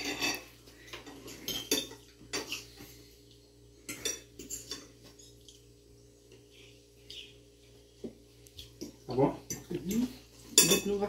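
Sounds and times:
cutlery clinking on a plate: 0.0 - 2.7, 3.8 - 5.4, 8.7 - 11.0.

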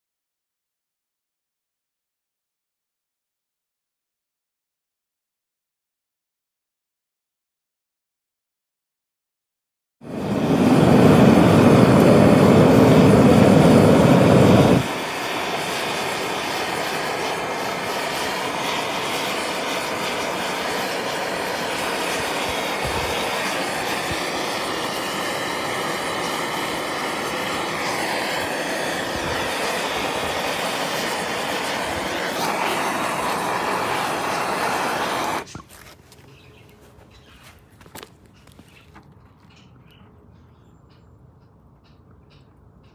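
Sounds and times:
gas torch flame burning: 10.0 - 35.7.

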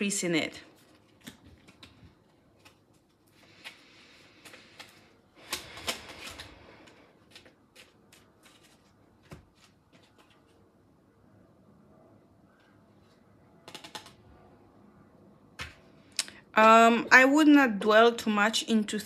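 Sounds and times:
cards riffling and sliding: 0.8 - 10.6
cards clicking and tapping: 1.1 - 3.8, 4.4 - 10.5, 13.6 - 14.2.

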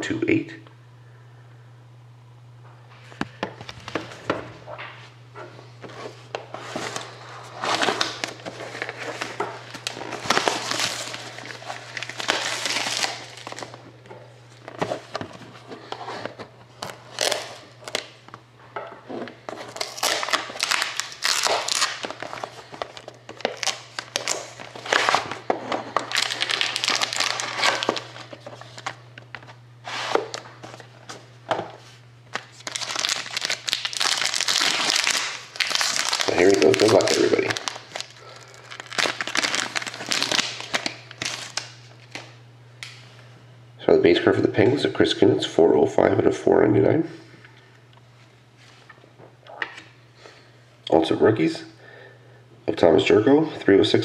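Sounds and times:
steady low hum: 0.0 - 54.0
plastic wrapping crinkling: 5.9 - 18.4, 19.1 - 43.0.

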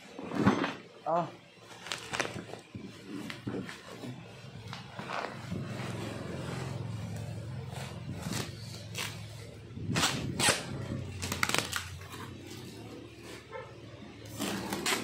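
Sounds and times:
plastic bag rustling and crinkling: 1.6 - 4.0, 11.0 - 13.4.

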